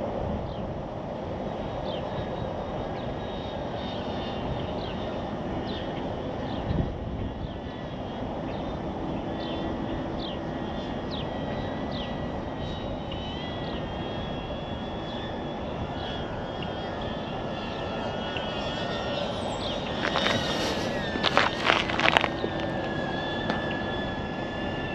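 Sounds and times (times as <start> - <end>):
faint drone whine: 0.0 - 24.9
steady rushing noise: 15.3 - 24.9.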